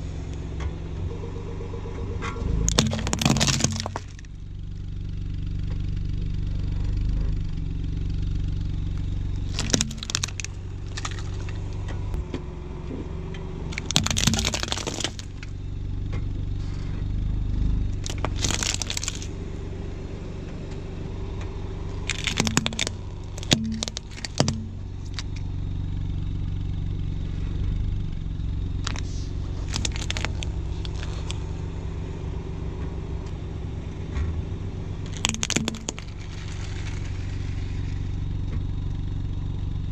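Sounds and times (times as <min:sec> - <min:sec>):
car engine running: 0:00.0 - 0:39.9
plastic toy cracking under tyre: 0:02.7 - 0:04.3, 0:09.4 - 0:11.6, 0:13.7 - 0:15.5, 0:18.0 - 0:19.4, 0:22.0 - 0:25.4, 0:28.8 - 0:31.4, 0:35.0 - 0:37.7.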